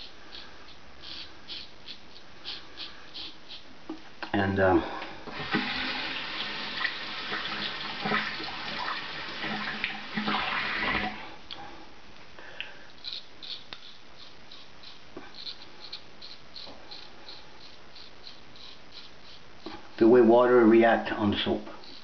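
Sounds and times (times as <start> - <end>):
razor scraping stubble: 0.0 - 3.7, 13.0 - 20.2, 21.1 - 22.0
tap water running into sink: 5.3 - 11.2.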